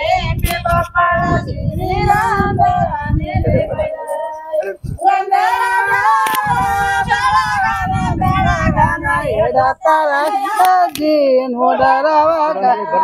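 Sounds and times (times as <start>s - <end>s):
high voices singing folk song: 0.0s - 13.0s
sharp click: 0.4s - 0.9s, 6.2s - 6.5s, 10.2s - 11.1s.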